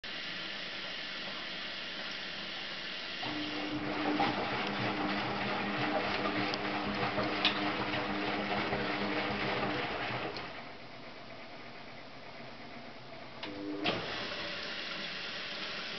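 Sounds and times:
washing machine motor hum: 0.3 - 15.9
water and laundry sloshing: 3.1 - 10.6.

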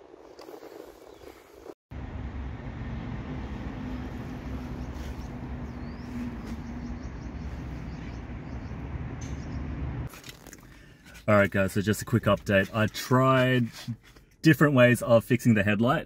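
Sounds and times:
traffic and wind rumble: 0.0 - 12.8
high bird chirps: 4.6 - 9.8.

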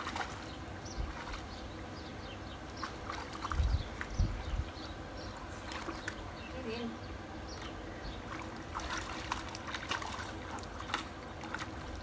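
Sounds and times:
puppy splashing in water: 0.0 - 1.7, 2.7 - 4.5, 5.3 - 6.3, 7.6 - 12.0.

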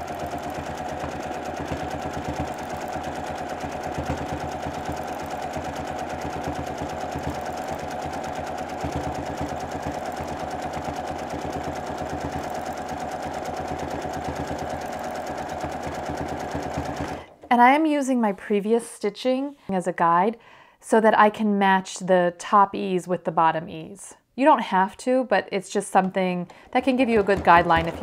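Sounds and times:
sewing machine running: 0.0 - 17.5, 26.9 - 28.0.

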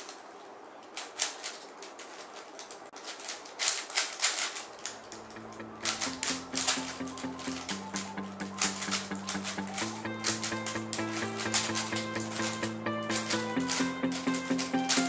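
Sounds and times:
faint music: 0.0 - 15.0
puzzle cube clicking: 0.0 - 15.0.

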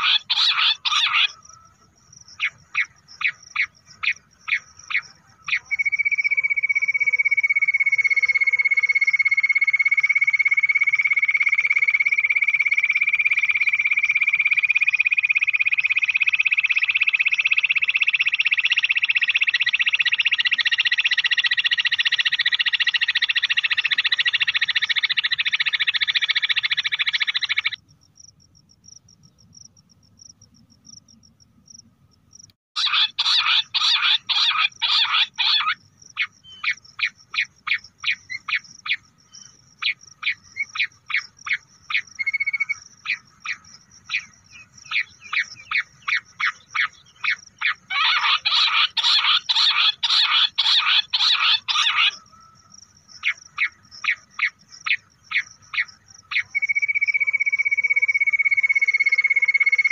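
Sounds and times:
quail sharp call notes: 0.0 - 1.7
quail trilling chorus: 0.0 - 5.8, 32.8 - 39.0, 39.8 - 52.6.

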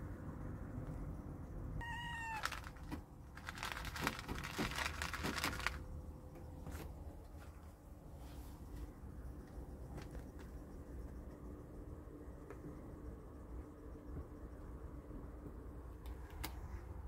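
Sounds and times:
kitten meowing: 1.8 - 2.7.

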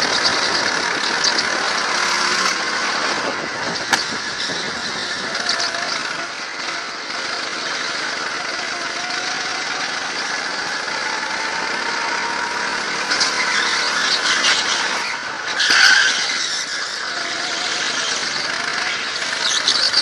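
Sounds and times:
go-kart engine running: 0.0 - 20.0
tyres squealing: 12.1 - 20.0.

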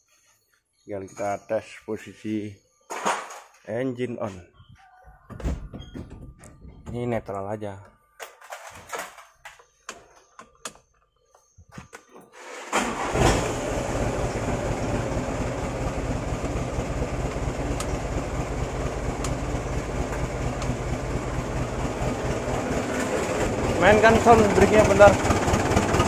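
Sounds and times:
diesel truck engine starting and idling: 12.4 - 26.0.

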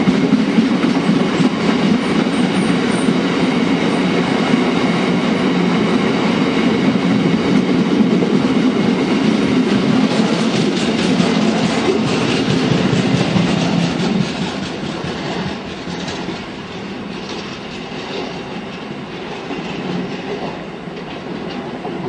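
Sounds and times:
freight train wagons rolling on rails: 6.6 - 22.0.

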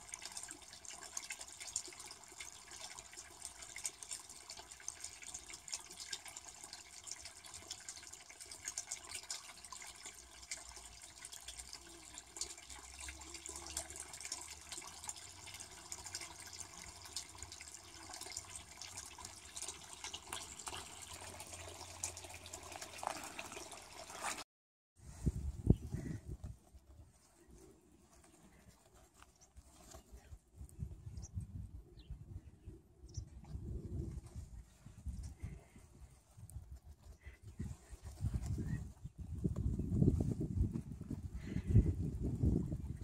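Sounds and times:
water trickling in pond: 0.0 - 24.5, 33.1 - 43.0.

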